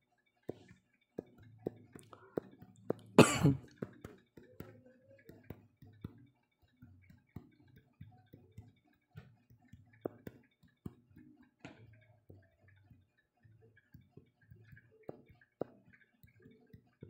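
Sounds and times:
faint clicks and ticks: 0:00.0 - 0:17.0.

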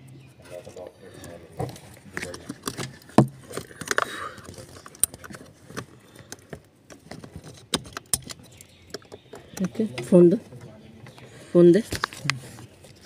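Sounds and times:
tools clicking and knocking: 0:02.2 - 0:10.1.

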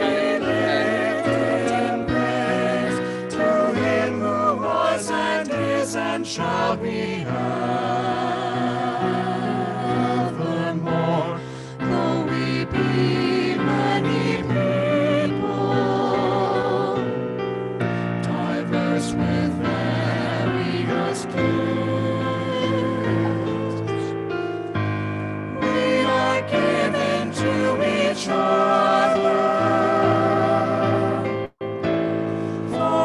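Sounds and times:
vocal ensemble singing in harmony: 0:00.0 - 0:31.6, 0:32.2 - 0:33.0.

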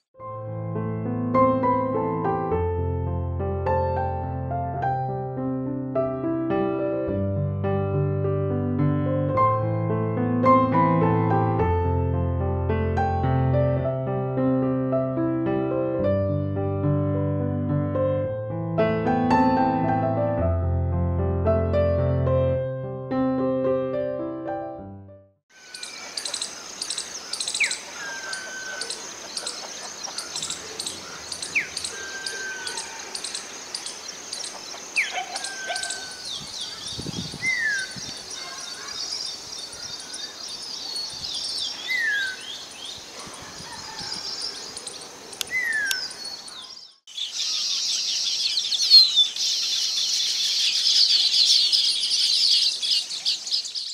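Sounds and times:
chorus of high chirps: 0:25.6 - 0:53.9
high-pitched bird chirping: 0:25.6 - 0:53.9
bird whistling downward: 0:30.4 - 0:33.4, 0:35.0 - 0:38.2, 0:41.0 - 0:42.5, 0:43.6 - 0:53.9.

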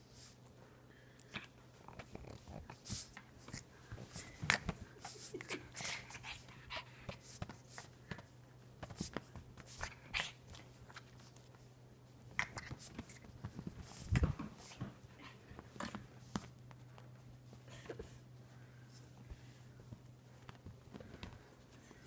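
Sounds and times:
dog making play noises: 0:01.3 - 0:11.5, 0:12.2 - 0:17.6.

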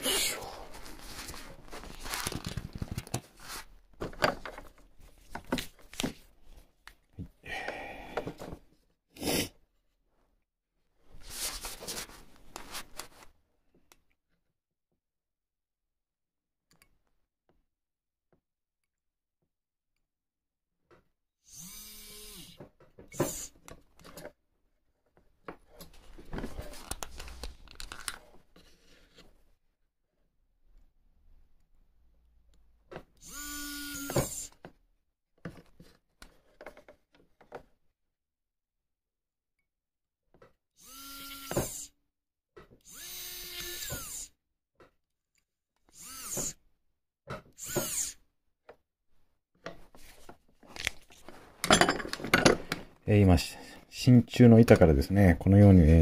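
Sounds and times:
micromotor handpiece whining: 0:21.5 - 0:22.6, 0:33.2 - 0:34.6, 0:40.8 - 0:41.9, 0:42.8 - 0:44.4, 0:45.9 - 0:46.6, 0:47.6 - 0:48.2
tools rustling: 0:49.7 - 0:53.0.

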